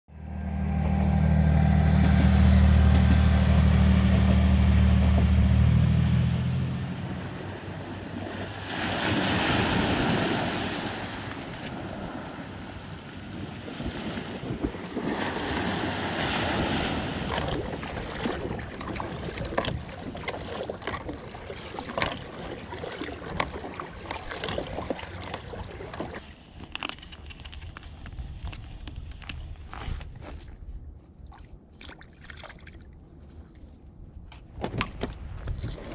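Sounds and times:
loud steady low hum: 0.1s - 8.7s
water lapping around kayak: 2.5s - 35.9s
waves washing onto sandy beach: 6.8s - 26.2s.

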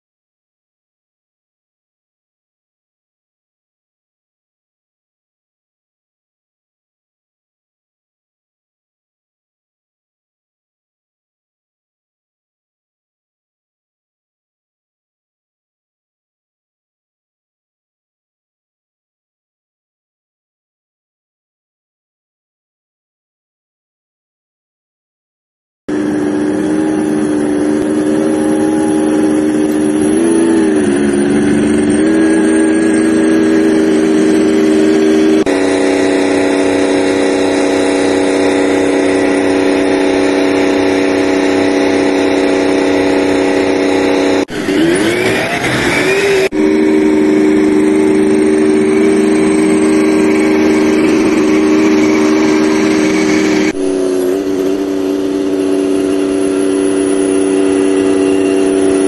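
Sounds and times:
tank diesel engine droning: 25.9s - 59.0s.

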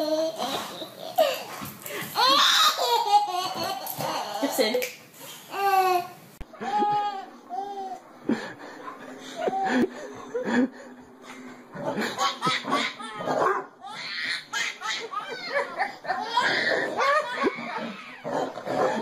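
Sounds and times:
baby laughing: 0.0s - 4.7s, 5.5s - 8.0s, 11.9s - 19.0s.

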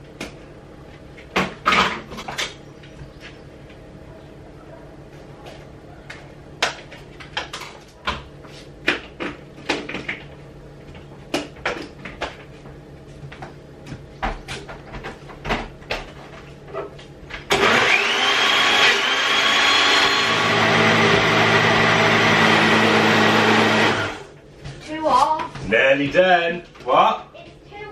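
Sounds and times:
blender motor whine: 17.5s - 24.3s.

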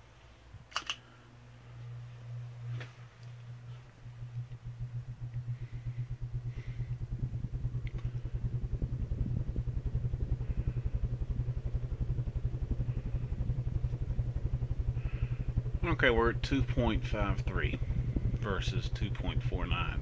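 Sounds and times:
ceiling fan whooshing: 0.0s - 20.0s.

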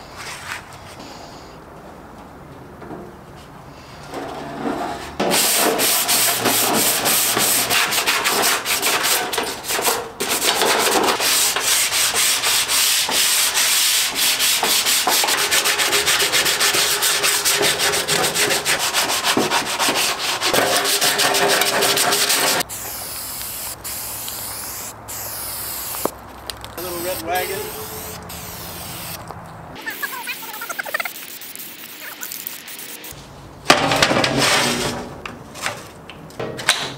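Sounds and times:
sanding body filler: 5.3s - 26.1s, 26.8s - 29.2s.

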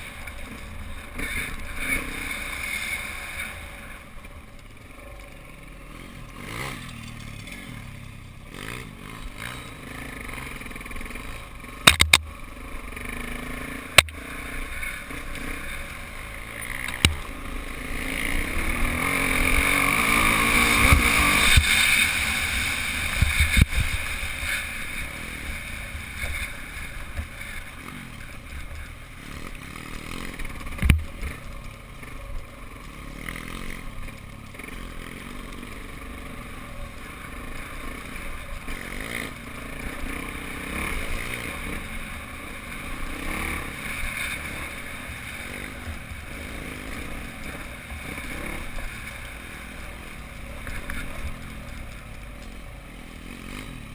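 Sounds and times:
off-road motorbike engine: 0.0s - 53.9s
sharp knocks: 11.8s - 12.3s.

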